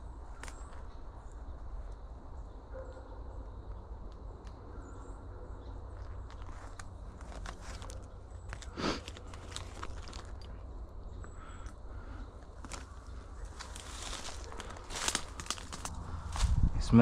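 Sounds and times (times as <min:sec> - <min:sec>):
twigs crackling: 0:00.0 - 0:02.1, 0:05.9 - 0:16.7
footsteps in dry brush: 0:06.0 - 0:10.5, 0:12.4 - 0:16.8
low rumble: 0:06.6 - 0:17.0.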